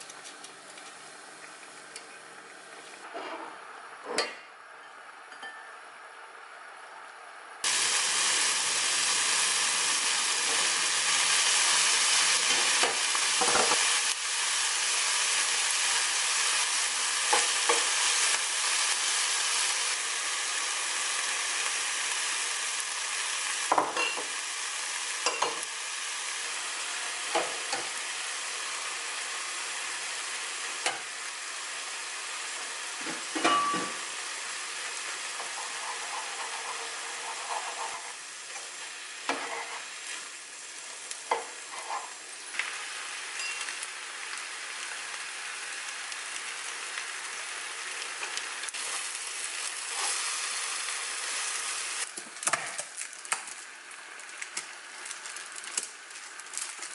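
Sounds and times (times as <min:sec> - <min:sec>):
food sizzling in a pan: 0:07.6 - 0:56.9
spatula knocking and scraping pan: 0:35.4 - 0:39.9.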